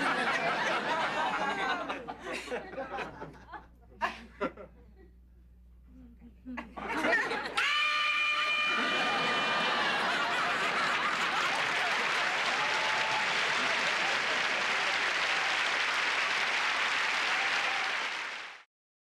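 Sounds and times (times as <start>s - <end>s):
studio audience applauding: 7.6s - 18.7s.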